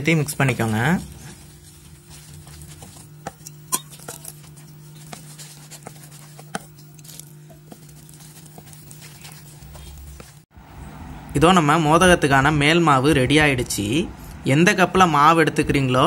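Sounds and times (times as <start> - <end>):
stick scraping metal pot: 0.0 - 10.4.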